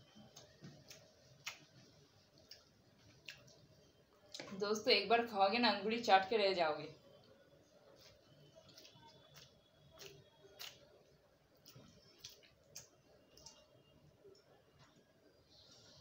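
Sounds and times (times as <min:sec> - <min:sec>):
chewing and mouth smacks: 0:00.2 - 0:04.5, 0:08.0 - 0:15.1.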